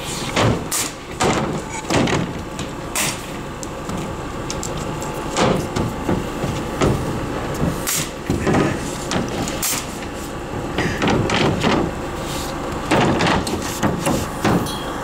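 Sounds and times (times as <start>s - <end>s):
pneumatic nail gun shots: 0.2s - 2.2s, 2.9s - 3.3s, 7.7s - 8.8s, 9.5s - 10.0s, 12.9s - 14.8s
wooden knocks and scrapes: 12.9s - 14.6s.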